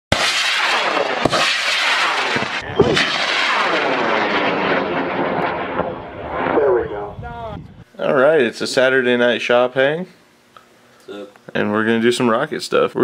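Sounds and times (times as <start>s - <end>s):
rocket motor roaring: 0.1s - 7.8s.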